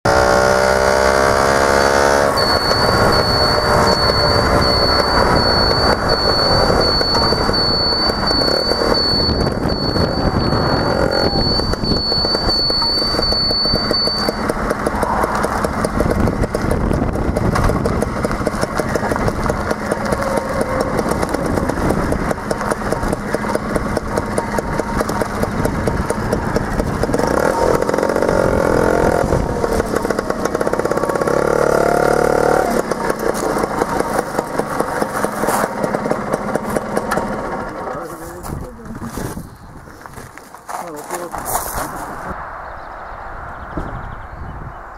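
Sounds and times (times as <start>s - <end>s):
scooter engine running: 0.0s - 42.4s
steady high-pitched tone: 1.6s - 15.4s.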